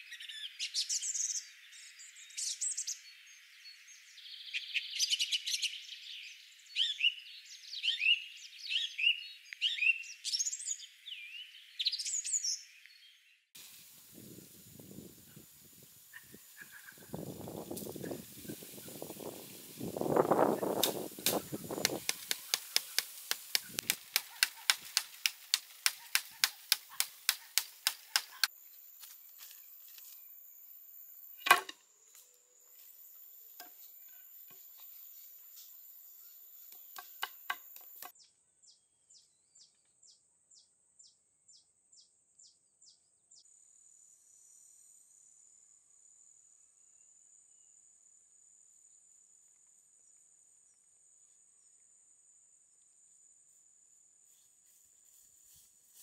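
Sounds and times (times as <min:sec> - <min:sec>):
high insect buzz: 0:13.6 - 0:38.1
high-pitched insect calls: 0:13.6 - 0:38.2.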